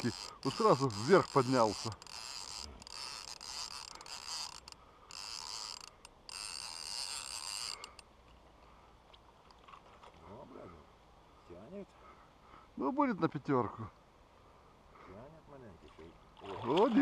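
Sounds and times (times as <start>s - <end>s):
fishing reel whirring: 0.0s - 8.1s.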